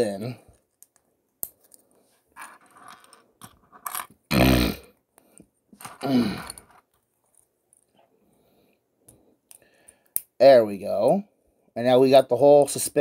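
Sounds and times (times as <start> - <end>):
man grunting: 6.0 - 6.5.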